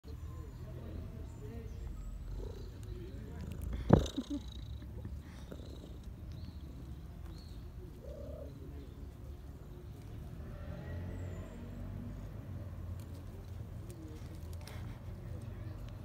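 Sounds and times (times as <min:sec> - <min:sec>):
cat purring: 0:02.0 - 0:07.2, 0:07.9 - 0:08.6
faint bird calls: 0:07.4 - 0:08.8.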